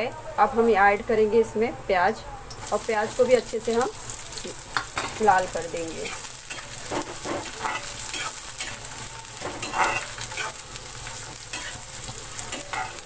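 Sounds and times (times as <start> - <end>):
onions sizzling in oil: 2.4 - 13.0
spatula scraping metal pan: 9.4 - 10.6.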